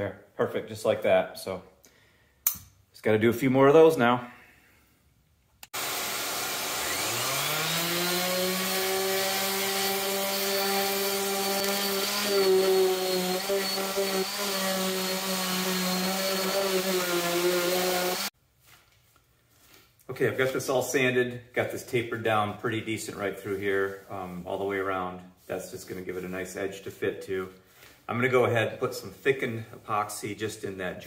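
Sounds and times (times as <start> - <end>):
orbital sander motor whine: 5.8 - 18.3.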